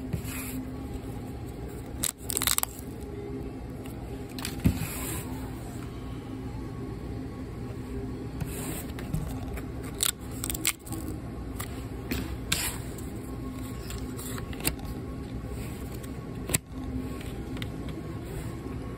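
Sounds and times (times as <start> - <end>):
steady background hum: 0.0 - 18.9
paper tabs tearing: 1.8 - 2.9, 9.4 - 11.1.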